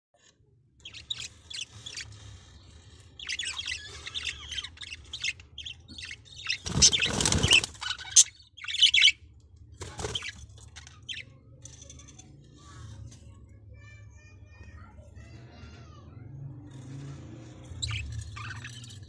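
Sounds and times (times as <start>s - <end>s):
budgerigars chirping: 0.8s - 9.2s, 17.8s - 19.0s
wings flapping: 6.4s - 8.0s.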